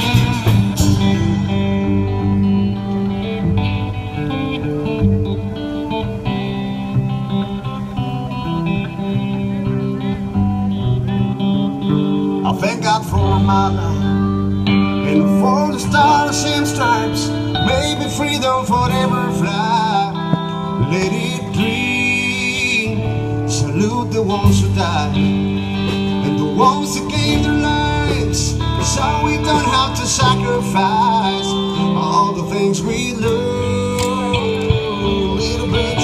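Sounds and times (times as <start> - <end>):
bass notes: 0.0 - 36.0
sliding lead melody: 0.0 - 36.0
strummed acoustic guitar: 0.0 - 36.0.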